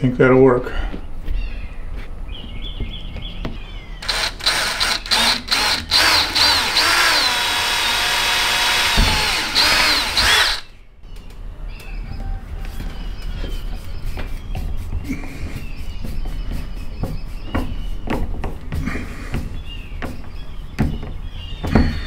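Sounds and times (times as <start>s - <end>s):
power drill driving a screw: 4.0s - 10.7s.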